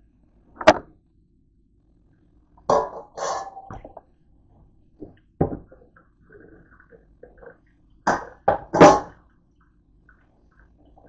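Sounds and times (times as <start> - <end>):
dishes clattering in a steel sink: 2.7 - 4.0, 8.1 - 9.2.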